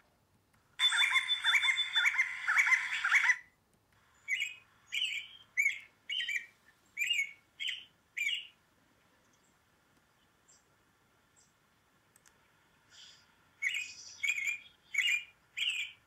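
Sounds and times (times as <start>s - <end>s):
bird rising chirps: 0.8s - 3.4s, 4.2s - 8.6s, 13.0s - 16.0s
short sharp bird calls: 0.8s - 3.5s.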